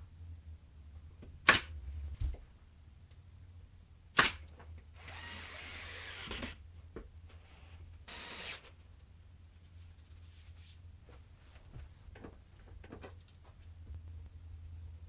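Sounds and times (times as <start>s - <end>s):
nail gun firing cracks: 1.4s - 1.7s, 4.2s - 4.5s.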